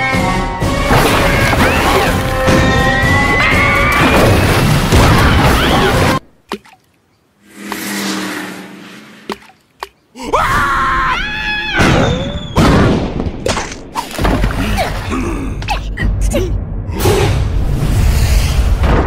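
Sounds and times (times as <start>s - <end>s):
swell of noise: 7.4s - 9.4s.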